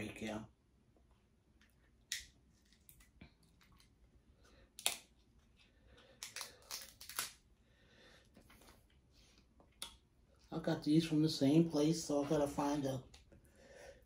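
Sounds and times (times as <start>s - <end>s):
crab shells cracking: 4.8s - 5.2s, 6.1s - 7.4s.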